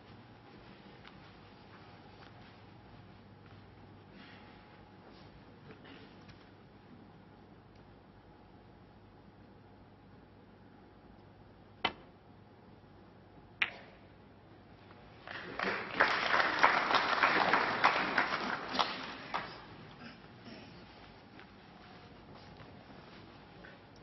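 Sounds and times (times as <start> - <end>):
audience applauding: 15.2 - 20.0.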